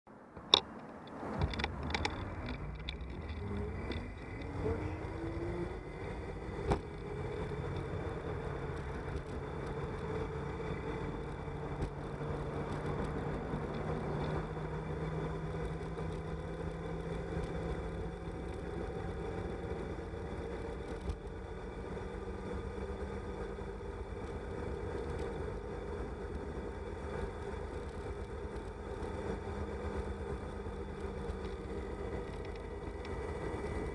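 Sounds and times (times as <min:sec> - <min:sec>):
wind and road noise: 0:00.1 - 0:33.9
bicycle whine: 0:00.4 - 0:33.9.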